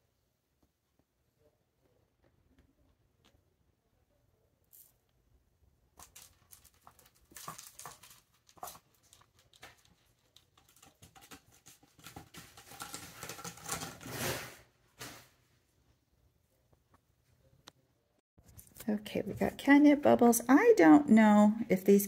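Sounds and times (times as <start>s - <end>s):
paws and plastic toys tapping: 6.1s - 14.0s.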